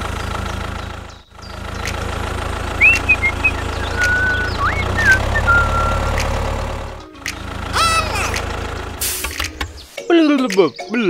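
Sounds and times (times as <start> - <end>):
tractor engine chugging: 0.0 - 9.8
whistled chirps: 2.8 - 6.2.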